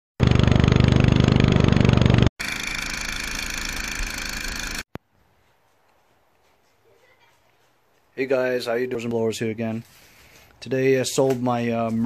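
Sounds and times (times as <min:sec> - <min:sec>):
lawn mower engine running: 0:00.2 - 0:04.9
snowblower engine whining: 0:00.2 - 0:04.9.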